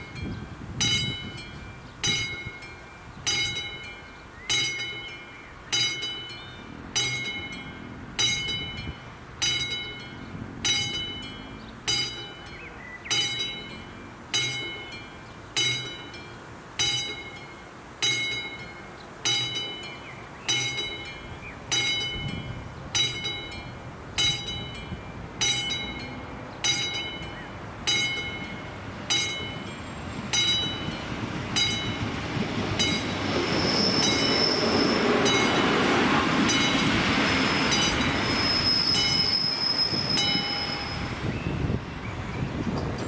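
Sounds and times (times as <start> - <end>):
level crossing warning bell: 0.0 - 42.3
passenger train passing: 0.0 - 43.0
train wheel squeal: 24.3 - 43.0.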